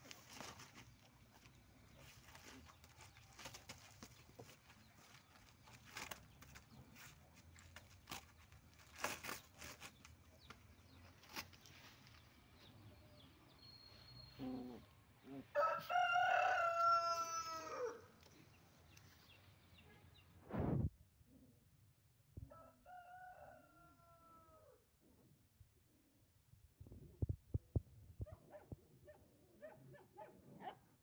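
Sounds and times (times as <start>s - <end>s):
rooster crowing: 15.5s - 18.1s, 22.5s - 24.8s.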